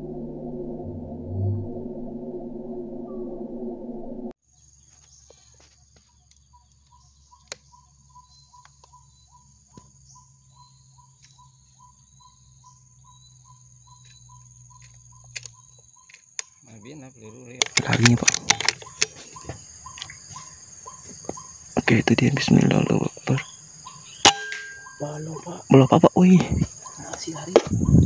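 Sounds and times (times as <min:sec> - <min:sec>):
insect drone: 0:00.0 - 0:28.0
bird call: 0:04.5 - 0:21.9, 0:23.0 - 0:25.8.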